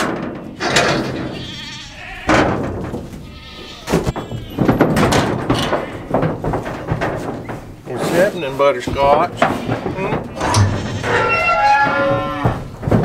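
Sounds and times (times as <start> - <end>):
metal gate and latch clanking: 0.0 - 7.6, 9.1 - 13.0
livestock bleating: 0.6 - 2.5, 3.1 - 4.7, 9.6 - 12.6.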